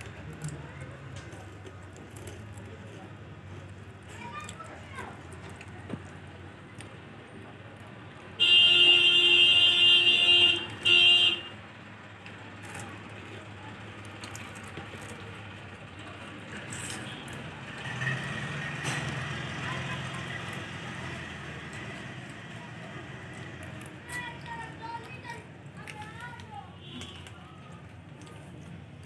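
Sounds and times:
loud buzzing horn: 0:08.4 - 0:11.5.

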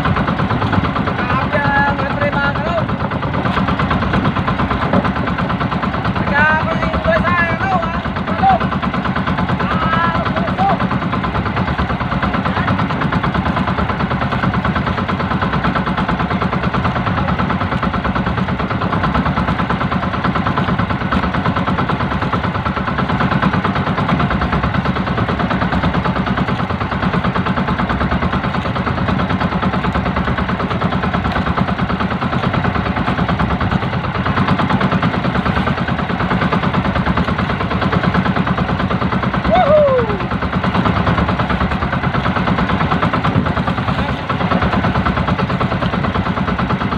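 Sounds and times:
boat engine running: 0:00.0 - 0:46.9.

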